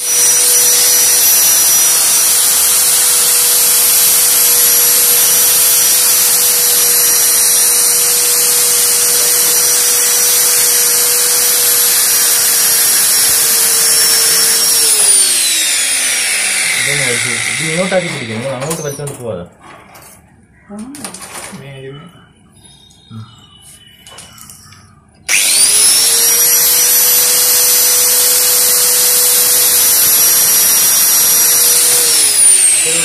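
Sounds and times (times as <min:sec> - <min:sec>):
angle grinder cutting chain: 0:00.0 - 0:19.2, 0:25.3 - 0:33.0.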